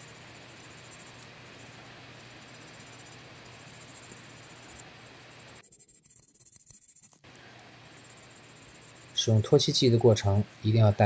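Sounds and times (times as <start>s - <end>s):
steady hiss and low hum: 0.0s - 11.0s
cotton swab scrubbing metal: 8.0s - 10.8s.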